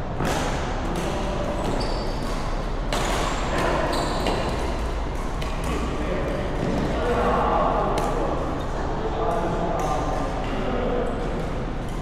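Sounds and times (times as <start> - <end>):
racket hitting shuttlecock: 0.2 - 6.9
shoe squeaks: 1.5 - 4.6.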